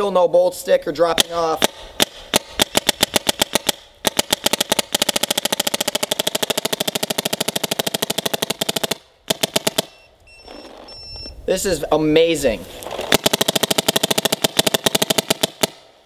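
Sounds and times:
paintball marker firing: 1.2s - 10.0s, 12.8s - 15.9s.

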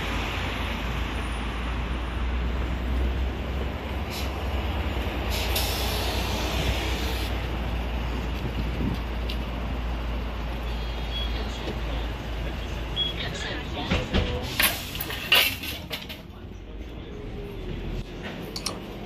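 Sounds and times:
bus engine rumbling: 0.0s - 19.0s
compressed air hiss: 5.3s - 7.3s.

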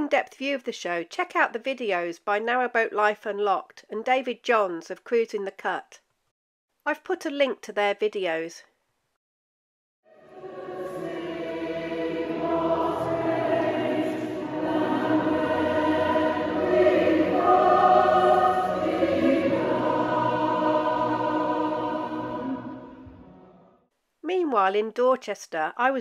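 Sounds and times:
choir singing in harmony: 10.1s - 23.8s.

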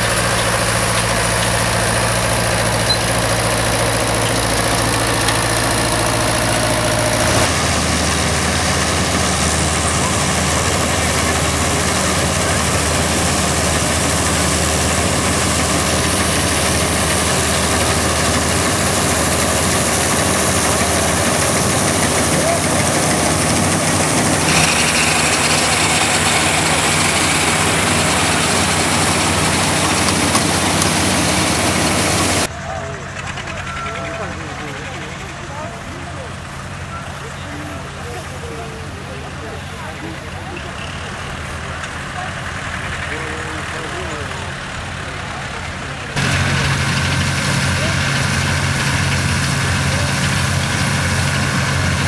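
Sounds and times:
combine harvester machinery running: 0.0s - 52.0s
tractor engine running: 0.0s - 52.0s.

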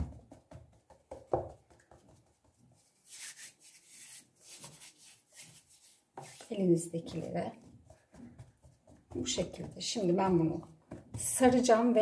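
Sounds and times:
hands kneading dough: 0.0s - 12.0s.

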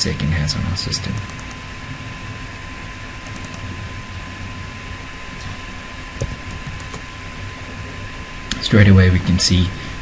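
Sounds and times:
microphone hiss: 0.0s - 10.0s
computer keyboard taps: 6.2s - 7.0s.

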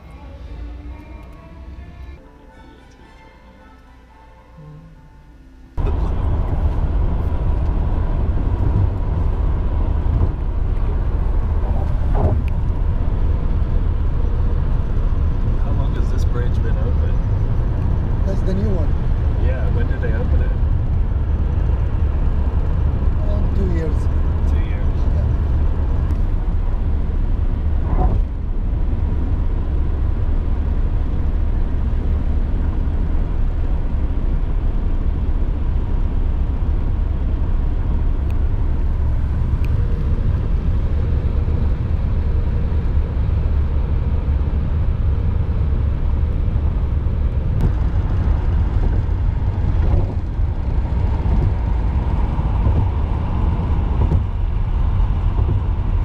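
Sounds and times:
vehicle rumble: 0.0s - 56.0s.

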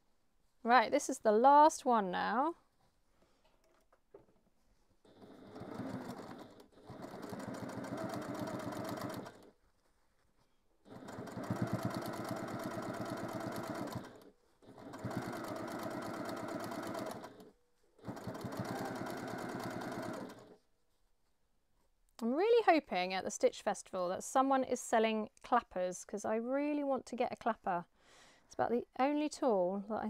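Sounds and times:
sewing machine stitching: 5.1s - 9.5s, 10.9s - 20.6s.

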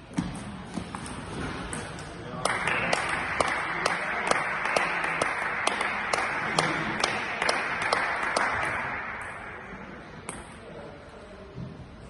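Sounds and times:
spectators applauding: 2.4s - 9.7s.

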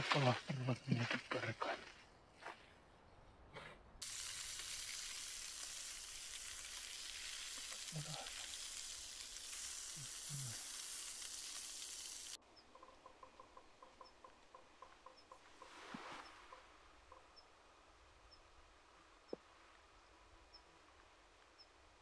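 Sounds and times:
fish sizzling in a pan: 4.0s - 12.4s.

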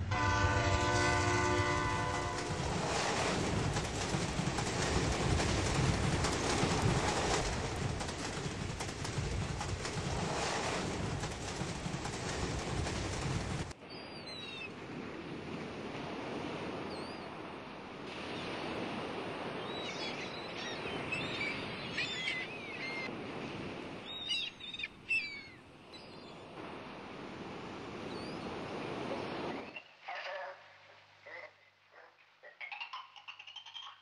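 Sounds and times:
rushing water or surf: 0.0s - 30.0s
bird calls and chirps: 19.6s - 23.1s, 24.1s - 26.3s, 32.5s - 34.0s.

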